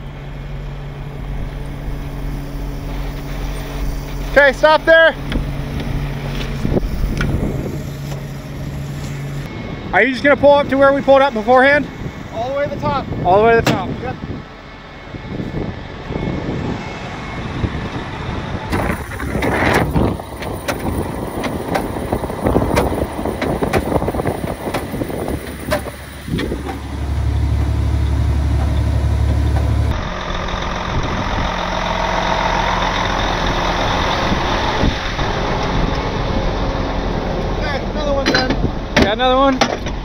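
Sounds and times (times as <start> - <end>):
low engine drone inside cab: 0.0 - 9.8, 17.8 - 40.0
truck diesel engines running: 0.0 - 40.0
knocks and clatter: 18.7 - 26.9, 38.2 - 40.0.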